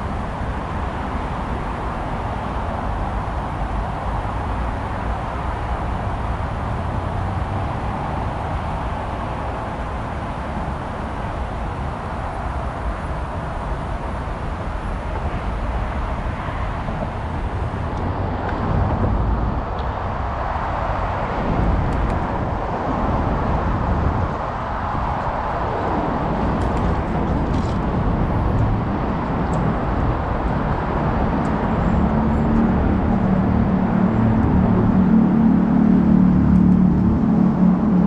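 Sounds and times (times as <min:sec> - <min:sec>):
city road traffic rumble: 0:00.0 - 0:38.0
vehicle engine humming: 0:00.0 - 0:38.0.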